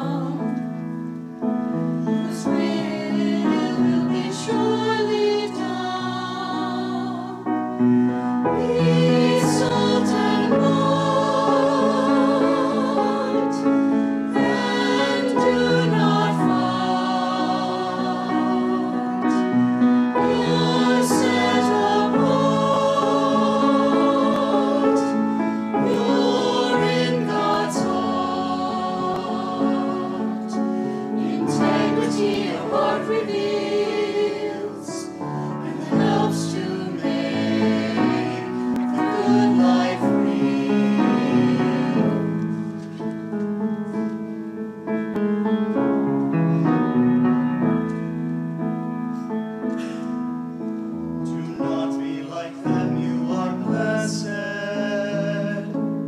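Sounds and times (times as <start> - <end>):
mixed choir singing: 0.0 - 0.5, 2.1 - 42.7.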